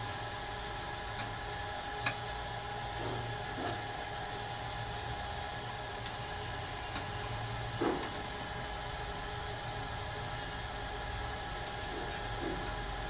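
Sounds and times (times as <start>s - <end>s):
steady hum and hiss: 0.0s - 13.0s.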